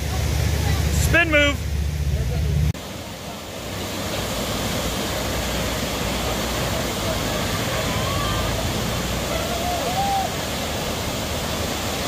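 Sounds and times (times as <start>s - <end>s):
water rushing over rocks: 0.0s - 12.0s.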